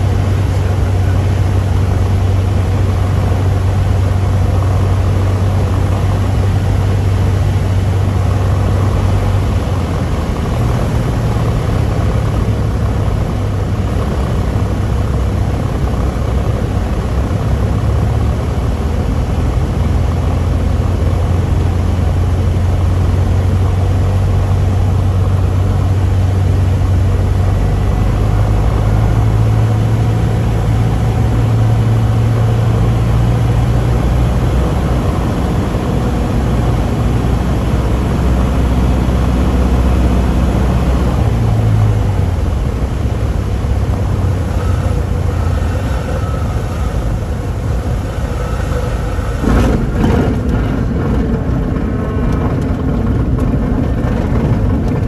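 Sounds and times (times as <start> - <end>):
aircraft engine and propeller droning: 0.0 - 55.0
airflow noise: 23.7 - 54.7.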